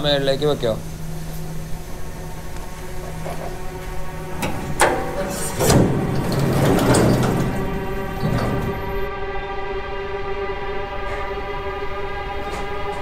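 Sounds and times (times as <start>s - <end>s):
steady electrical hum: 0.0s - 13.0s
lift doors sliding shut: 1.1s - 9.1s, 11.0s - 13.0s.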